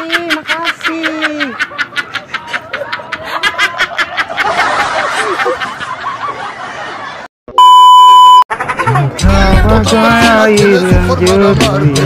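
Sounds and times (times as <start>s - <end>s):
young women giggling: 0.0s - 6.9s.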